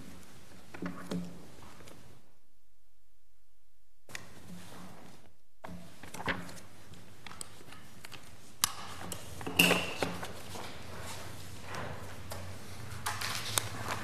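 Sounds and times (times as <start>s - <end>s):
paper rustling: 10.0s - 14.0s.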